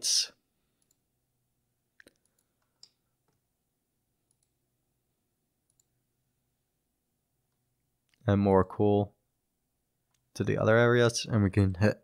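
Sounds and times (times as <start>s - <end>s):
computer mouse clicks: 0.8s - 1.0s, 2.0s - 3.4s, 4.2s - 4.6s, 5.6s - 6.0s.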